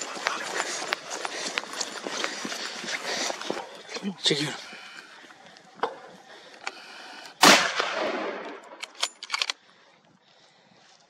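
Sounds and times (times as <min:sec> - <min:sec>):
rifle shot echoing: 0:07.4 - 0:08.9.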